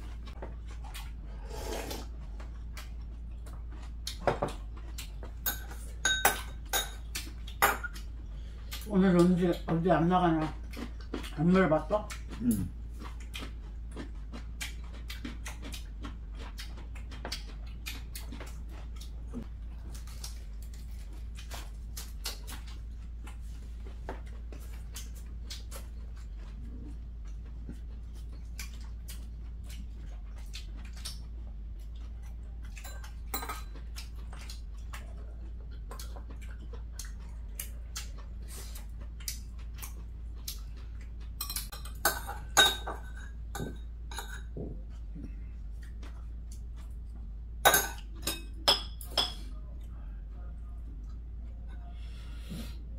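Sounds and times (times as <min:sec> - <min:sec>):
steady low hum: 0:00.0 - 0:52.9
utensils clinking on dishes: 0:05.4 - 0:07.0, 0:32.8 - 0:33.8, 0:41.4 - 0:44.6.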